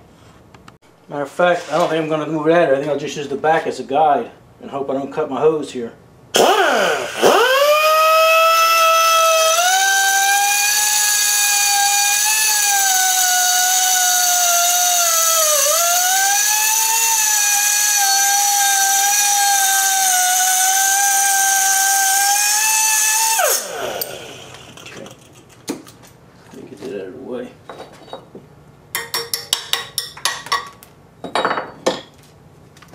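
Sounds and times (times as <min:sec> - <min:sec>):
cutoff tool whining through metal: 0:06.4 - 0:25.1.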